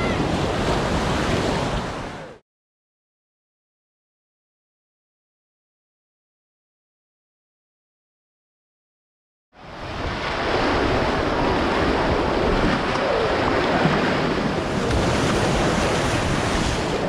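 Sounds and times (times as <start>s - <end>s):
surf and splashing water: 0.0s - 2.4s, 9.6s - 17.0s.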